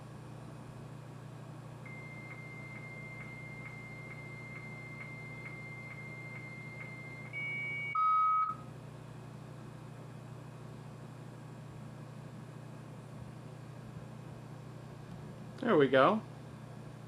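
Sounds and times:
modem carrier tone: 0:01.8 - 0:08.6
low modem calling tone: 0:01.9 - 0:08.6
modem answer tone clicking: 0:01.9 - 0:08.6.

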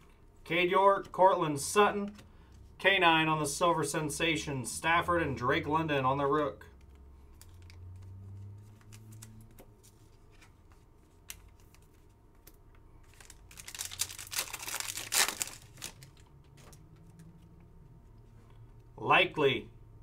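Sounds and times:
foil wrapper tearing and crinkling: 0:13.0 - 0:16.3.

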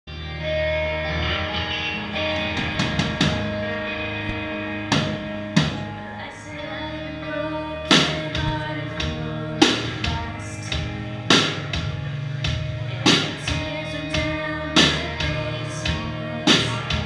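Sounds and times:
rock band playing: 0:00.1 - 0:17.0
drum and cymbal hits: 0:04.9 - 0:06.0, 0:07.9 - 0:17.0.

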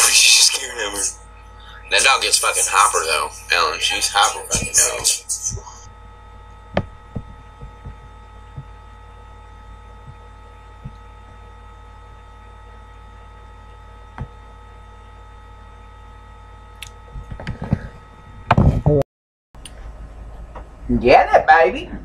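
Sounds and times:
faint steady tones: 0:00.0 - 0:18.5
low electrical hum: 0:00.0 - 0:19.0, 0:19.6 - 0:22.0.

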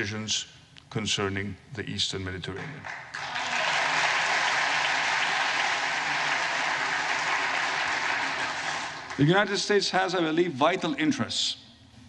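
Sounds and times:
large audience applauding: 0:02.6 - 0:09.7.

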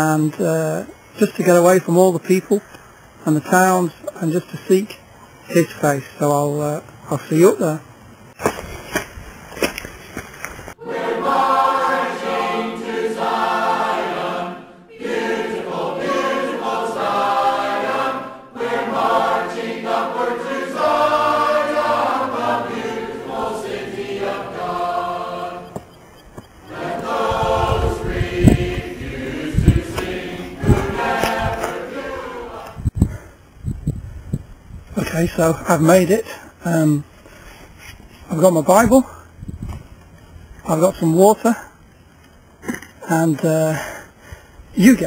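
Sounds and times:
choir singing: 0:10.8 - 0:33.0
low gusty rumble: 0:26.0 - 0:35.7, 0:39.2 - 0:40.5.

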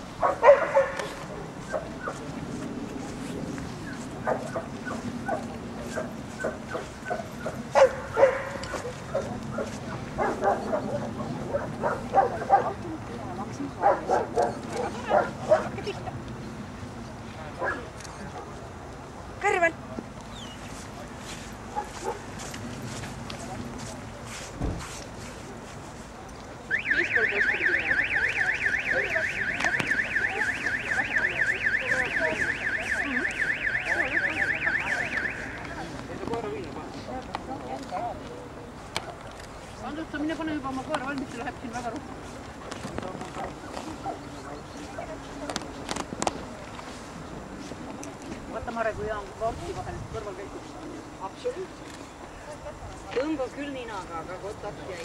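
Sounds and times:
dog barking: 0:00.2 - 0:02.2, 0:04.2 - 0:12.8, 0:13.8 - 0:15.8, 0:21.7 - 0:22.2.

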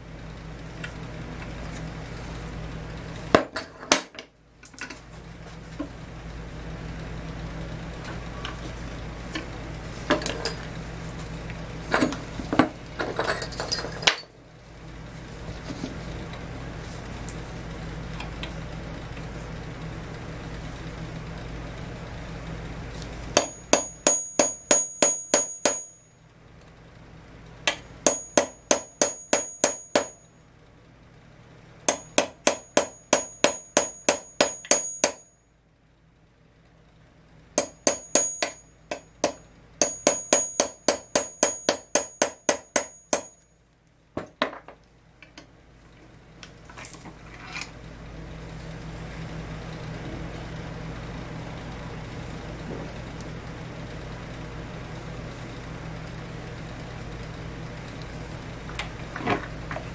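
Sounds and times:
hammer tapping metal punch: 0:23.4 - 0:26.0, 0:27.7 - 0:30.2, 0:31.9 - 0:35.3, 0:37.6 - 0:43.4.

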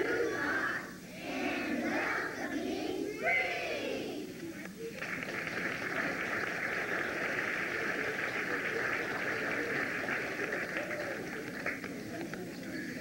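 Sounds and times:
children's choir singing: 0:00.0 - 0:04.3
tape hiss: 0:03.2 - 0:13.0.

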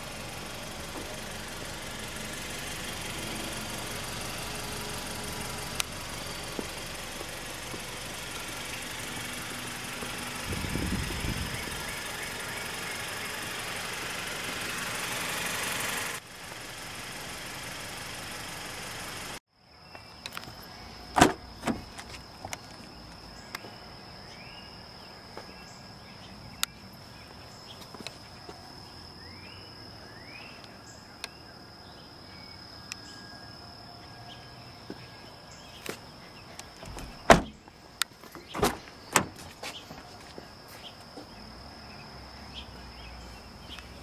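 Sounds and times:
car engine running: 0:00.0 - 0:19.4, 0:36.6 - 0:40.4
high insect drone: 0:00.0 - 0:44.0
car doors clunking: 0:21.1 - 0:22.2, 0:36.8 - 0:37.7, 0:38.4 - 0:39.8.

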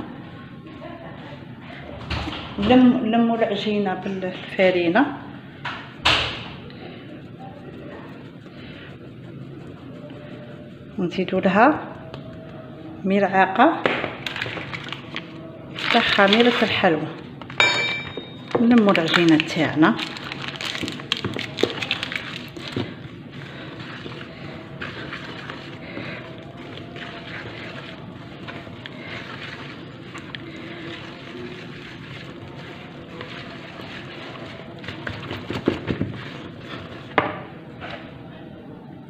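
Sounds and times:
hand working flour into dough: 0:02.8 - 0:38.2
wooden spoon scraping plastic bowl: 0:05.8 - 0:13.3, 0:14.2 - 0:17.6, 0:18.2 - 0:38.0.

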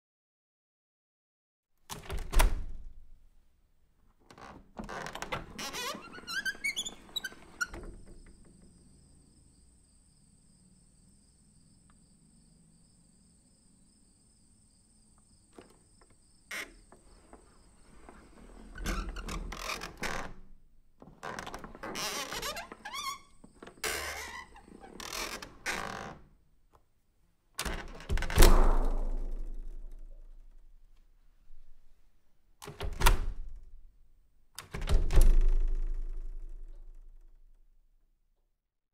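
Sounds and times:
door squeaks: 0:04.3 - 0:08.8, 0:15.5 - 0:20.4, 0:21.2 - 0:26.2.

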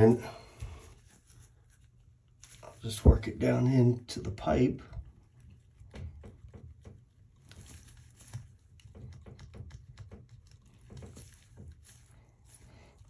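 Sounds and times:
plastic scraping against pipe: 0:04.1 - 0:13.0.

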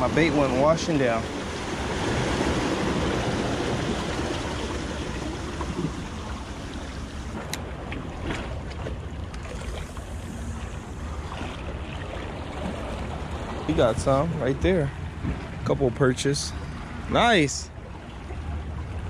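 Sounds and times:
waves washing over rocks: 0:00.0 - 0:08.6.

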